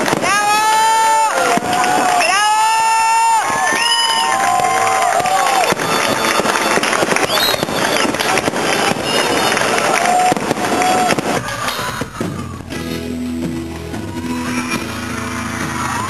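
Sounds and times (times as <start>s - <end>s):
fireworks crackling and popping: 0.0s - 16.0s
live band with electric guitars: 9.0s - 16.0s.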